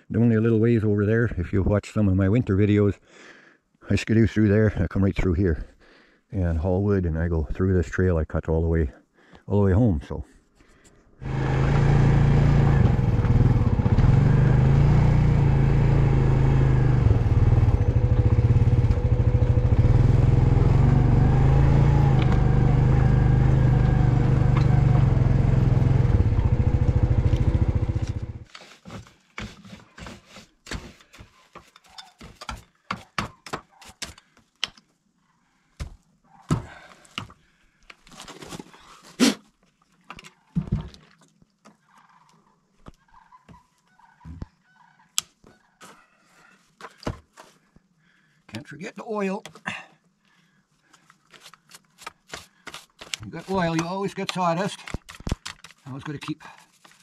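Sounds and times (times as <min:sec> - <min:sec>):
atv engine running: 0:11.2 - 0:28.5.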